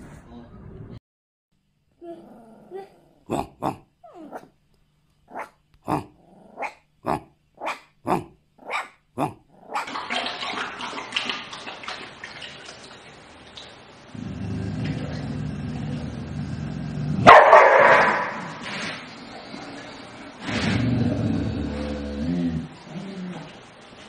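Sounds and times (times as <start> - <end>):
puppy yapping: 4.0 - 4.5, 5.3 - 6.8, 7.6 - 7.8, 8.6 - 9.0, 9.6 - 10.0.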